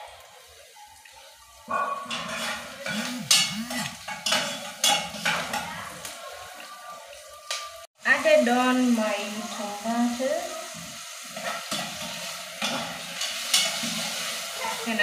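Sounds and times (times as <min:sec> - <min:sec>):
onions sizzling: 0:08.3 - 0:15.0.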